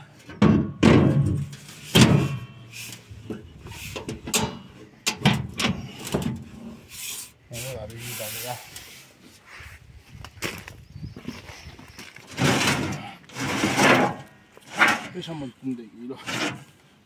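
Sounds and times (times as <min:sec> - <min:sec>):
metal hinges scraping: 0:00.0 - 0:09.1, 0:12.3 - 0:15.4, 0:16.1 - 0:16.7.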